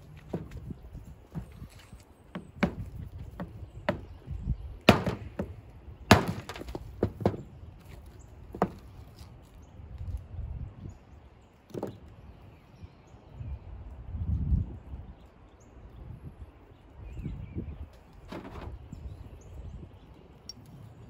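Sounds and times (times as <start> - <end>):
stone striking rock: 4.9 - 7.5.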